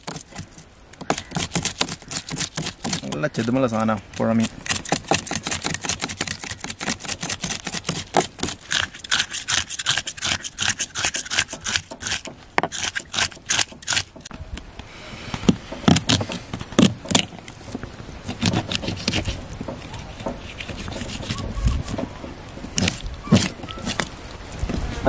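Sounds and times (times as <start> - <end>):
knife scraping fish scales: 0.0 - 14.3, 18.2 - 24.1.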